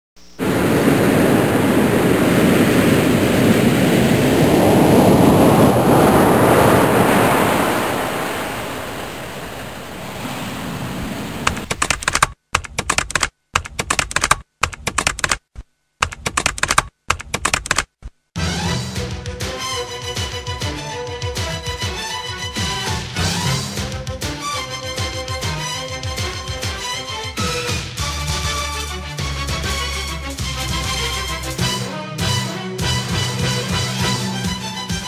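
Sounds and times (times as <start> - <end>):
loud rushing noise: 0.4 - 11.4
rapid clicking: 11.5 - 18.0.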